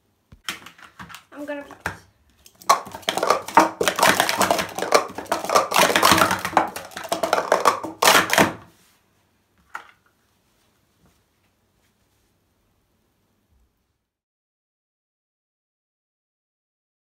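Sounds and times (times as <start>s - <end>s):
plastic cups clattering: 0.4s - 8.7s.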